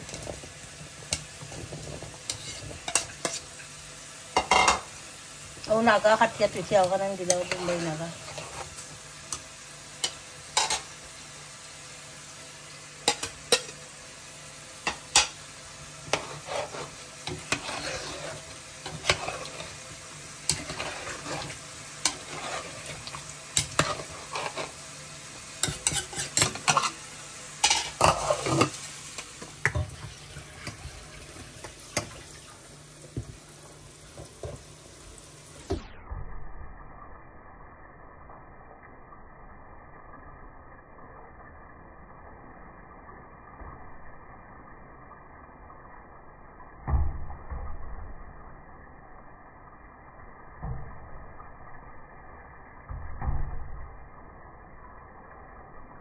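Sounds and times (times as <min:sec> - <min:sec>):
vegetables sizzling in a pan: 0:00.0 - 0:56.0
utensil scraping and knocking pan: 0:01.7 - 0:03.4, 0:16.1 - 0:19.8, 0:20.5 - 0:24.8, 0:25.6 - 0:27.0.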